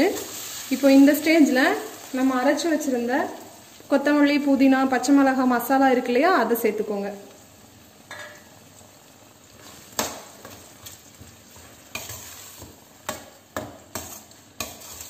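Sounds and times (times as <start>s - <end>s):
faint sizzle of frying: 0.0s - 15.0s
metal spatula scraping a pan: 9.5s - 15.0s.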